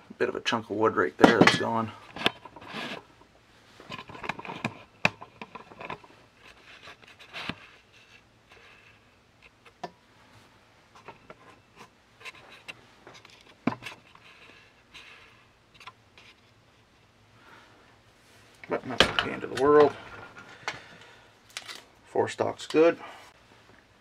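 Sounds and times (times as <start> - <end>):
sharp clicks and knocks: 18.6 - 20.8.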